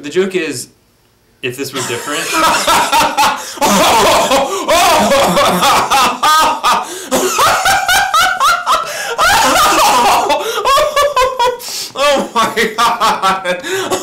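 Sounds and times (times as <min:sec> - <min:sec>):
man laughing heartily: 0:01.8 - 0:14.0.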